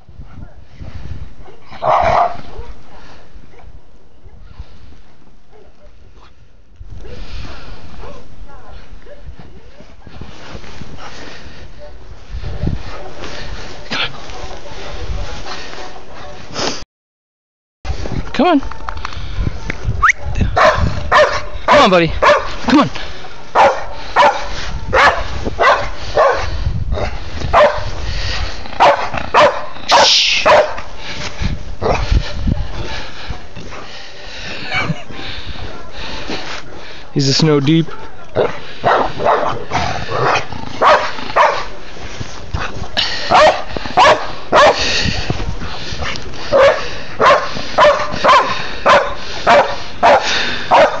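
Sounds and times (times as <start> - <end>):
dogs barking: 1.4 - 2.8, 20.2 - 22.6, 23.5 - 27.9, 28.8 - 30.9, 37.8 - 41.8, 43.2 - 45.0, 46.4 - 51.0.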